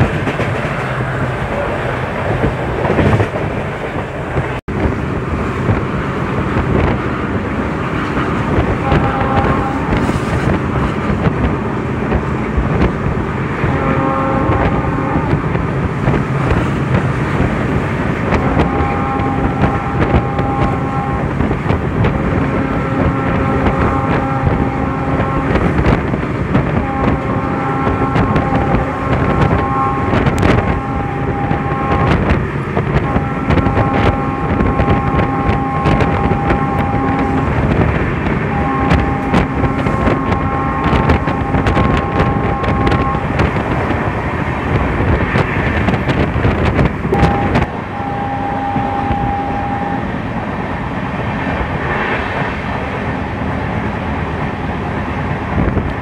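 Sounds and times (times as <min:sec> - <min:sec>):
clacks at rail joints: 0:00.0 - 0:47.8, 0:48.7 - 0:56.0
train wheels rumbling on rails: 0:00.0 - 0:56.0
wind on microphone: 0:00.0 - 0:56.0
steady multi-note whine: 0:47.1 - 0:50.1.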